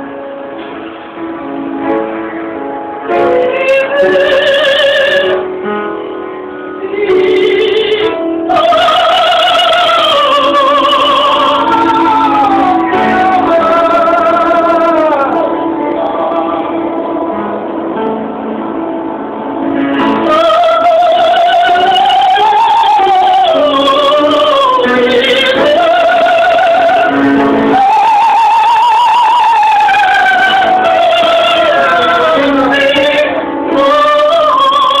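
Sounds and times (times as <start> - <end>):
piano: 0.0 - 35.0
woman singing opera: 3.1 - 5.5, 6.7 - 17.1, 20.0 - 35.0.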